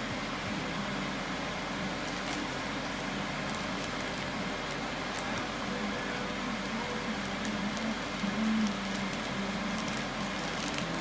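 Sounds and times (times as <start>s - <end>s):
steady appliance hum: 0.0s - 11.0s
plastic bag rustling: 3.4s - 5.5s, 7.2s - 11.0s.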